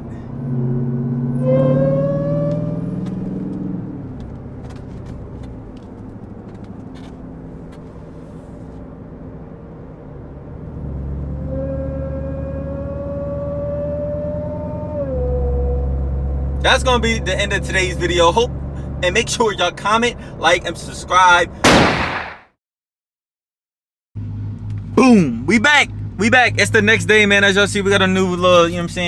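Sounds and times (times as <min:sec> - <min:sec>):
supercharger whine: 0:00.0 - 0:08.8, 0:09.4 - 0:19.9
car engine accelerating: 0:00.0 - 0:21.3, 0:24.2 - 0:29.0.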